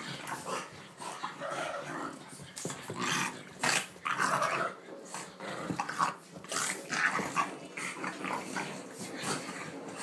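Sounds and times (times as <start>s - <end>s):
dogs growling: 0.0s - 10.0s.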